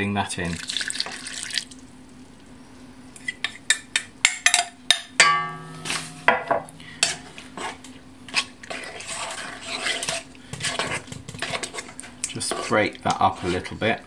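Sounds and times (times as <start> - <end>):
bowl ringing: 5.2 - 6.8.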